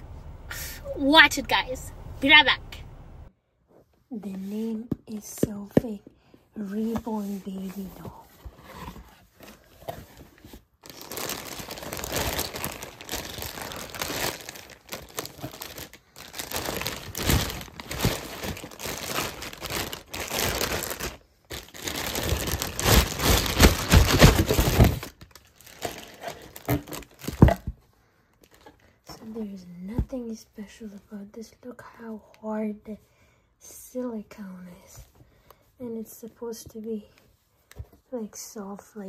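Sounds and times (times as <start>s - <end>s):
plastic wrapping crinkling: 10.8s - 27.6s.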